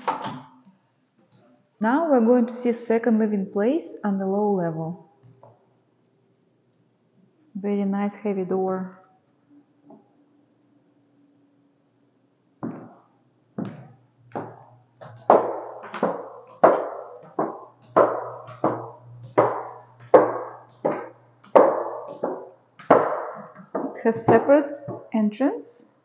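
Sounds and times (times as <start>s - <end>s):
footsteps on wooden stairs: 12.6s - 13.0s, 13.6s - 25.1s.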